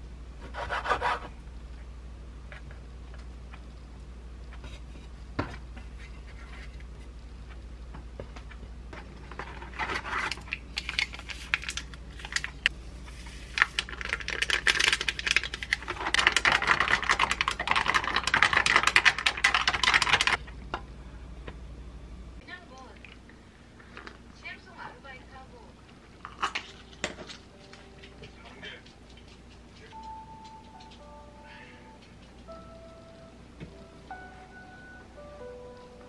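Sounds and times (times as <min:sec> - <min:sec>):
drink fizzing and crackling: 0:10.4 - 0:20.4, 0:22.8 - 0:24.3
straw stirring drink: 0:13.2 - 0:20.4.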